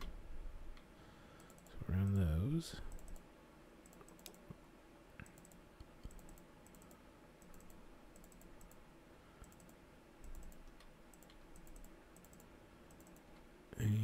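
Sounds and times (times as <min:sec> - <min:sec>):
low room hum: 0:00.0 - 0:14.0
computer mouse clicks: 0:00.7 - 0:01.8, 0:02.9 - 0:03.2, 0:03.8 - 0:04.6, 0:05.2 - 0:08.8, 0:09.4 - 0:13.5.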